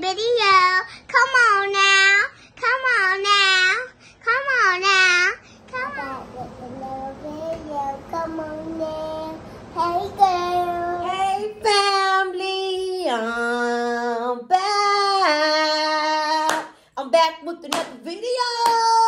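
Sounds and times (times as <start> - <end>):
hand claps: 16.5 - 16.8, 17.7 - 18.0.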